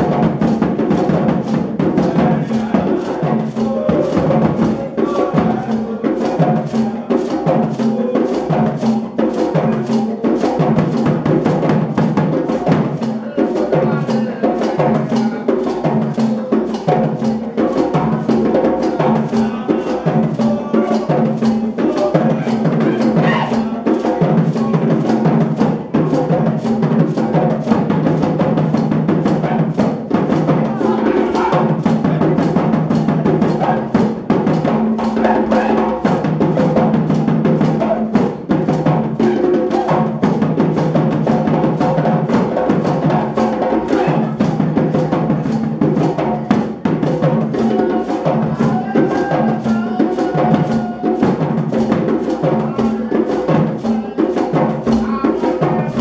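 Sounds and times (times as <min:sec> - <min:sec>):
hand drum ensemble: 0:00.0 - 0:56.0.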